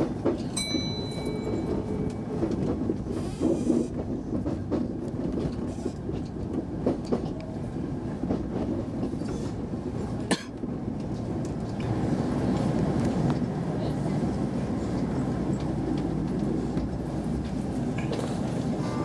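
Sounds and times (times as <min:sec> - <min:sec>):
train wheel rumble: 0:00.0 - 0:19.0.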